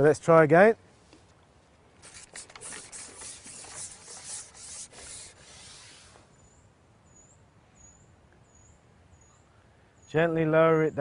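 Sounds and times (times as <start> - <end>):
fishing pole sliding through hands: 2.0 - 6.3.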